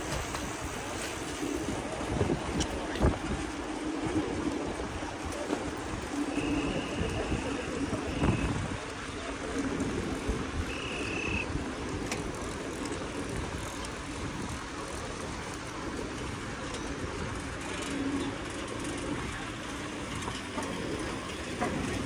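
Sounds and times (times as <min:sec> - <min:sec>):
road noise from bicycle: 0:00.0 - 0:22.0.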